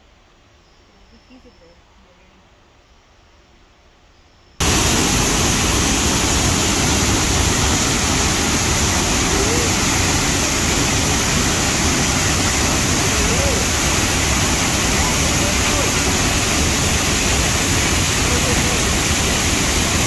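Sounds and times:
waterfall rushing: 0:04.6 - 0:20.0.

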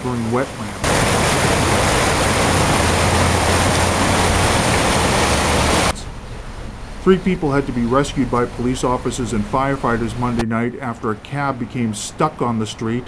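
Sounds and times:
floodwater rushing: 0:00.0 - 0:10.4.

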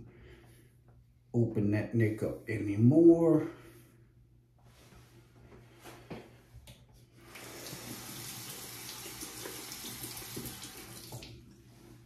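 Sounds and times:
tap running into sink: 0:07.4 - 0:11.3.

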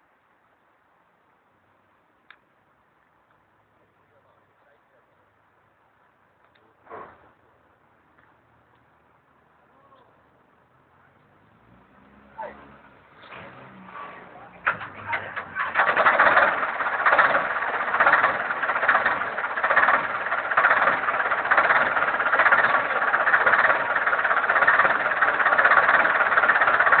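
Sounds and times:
diesel engine starting and running: 0:10.4 - 0:27.0.

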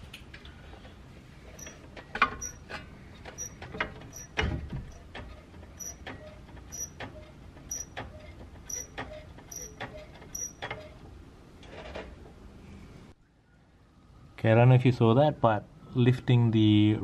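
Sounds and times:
short high squeaks: 0:01.5 - 0:11.0.

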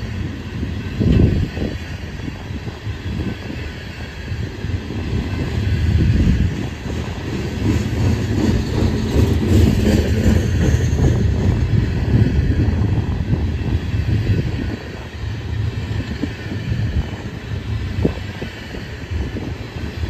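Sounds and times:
freight train rolling past: 0:00.0 - 0:20.0
wheels clattering on track: 0:04.4 - 0:20.0.

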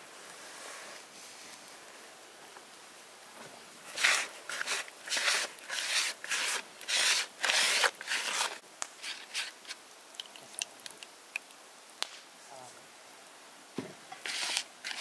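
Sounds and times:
hands rubbing flour in bowl: 0:03.9 - 0:09.6.

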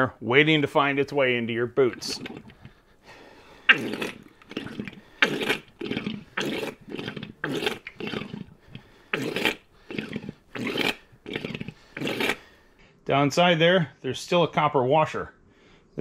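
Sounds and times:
fork pumped squirting oil and air: 0:01.8 - 0:02.8, 0:03.6 - 0:12.5.

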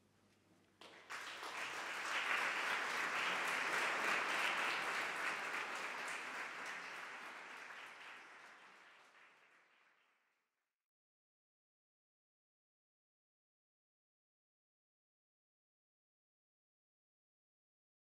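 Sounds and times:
audience applauding: 0:00.8 - 0:10.0.

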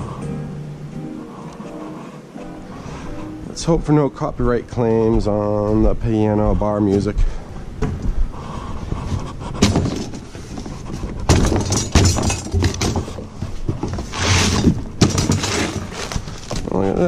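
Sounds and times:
cardboard flaps rustling: 0:09.0 - 0:17.0
metal lines knocking and rattling: 0:09.1 - 0:16.8.

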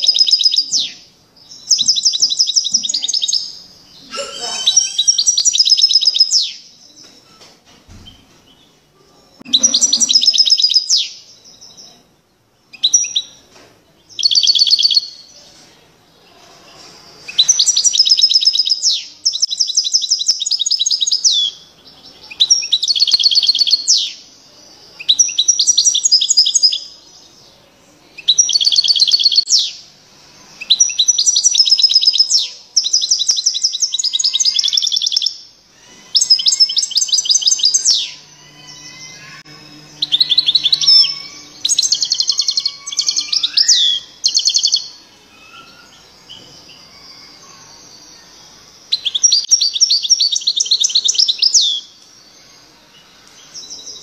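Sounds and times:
goldfinch twittering and trilling: 0:00.0 - 0:06.6, 0:09.5 - 0:11.9, 0:30.6 - 0:52.6.

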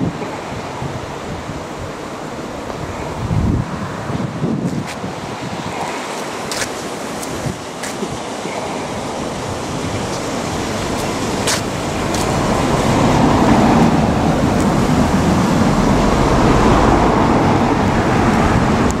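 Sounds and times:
passing vehicles rushing: 0:08.5 - 0:19.0
low rumble: 0:12.2 - 0:19.0.

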